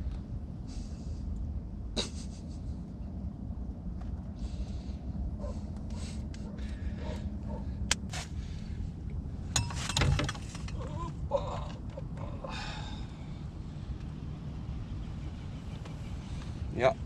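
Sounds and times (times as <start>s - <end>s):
low rumble: 0.0s - 9.7s.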